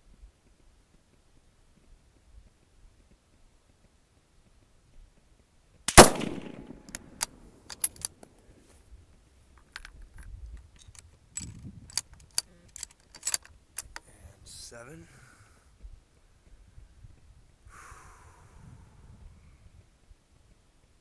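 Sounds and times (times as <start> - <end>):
rifle shot with echo: 5.9 - 7.5
rifle bolt metallic clicks: 5.9 - 8.3, 9.6 - 14.0.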